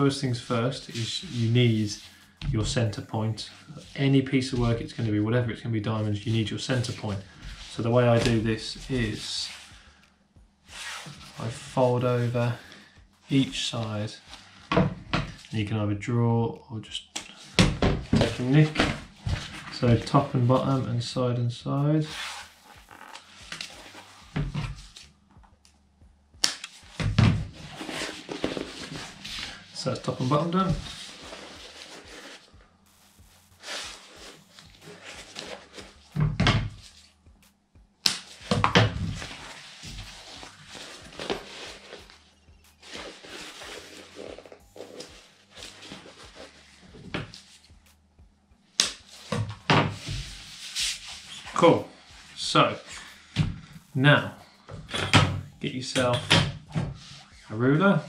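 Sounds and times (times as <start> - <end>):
vinyl sheet rustling: 0.0 - 9.9, 10.6 - 15.6, 17.3 - 25.2, 26.4 - 37.2, 38.0 - 48.0, 48.7 - 56.1, 56.7 - 58.0
sheet brushing on cutting mat: 0.8 - 2.4, 10.7 - 12.6, 22.1 - 25.1, 27.6 - 36.1, 39.2 - 47.8, 50.0 - 54.0.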